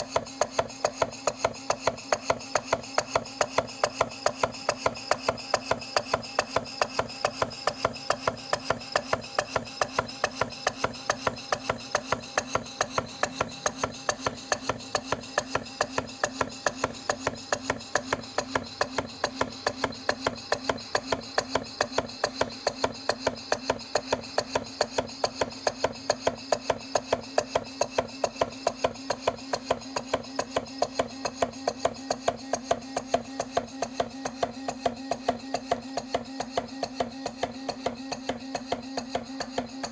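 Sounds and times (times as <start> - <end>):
model steam engine knocking: 0.0 - 39.9.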